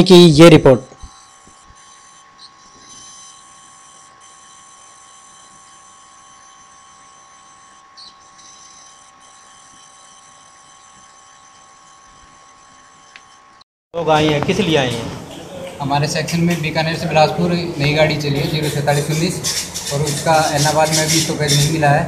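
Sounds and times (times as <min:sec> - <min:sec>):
faint electronic whine: 0:00.0 - 0:13.6.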